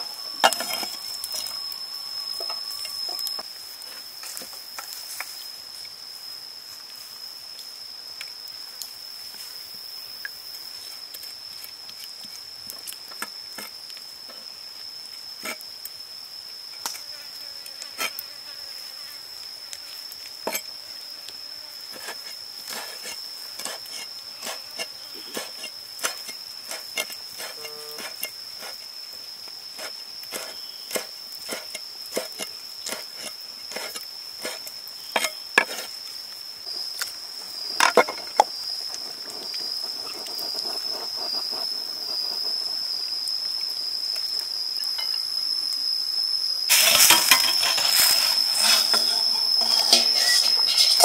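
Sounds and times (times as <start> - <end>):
high insect trill: 0.0 - 51.0
broth boiling and bubbling: 36.6 - 44.2.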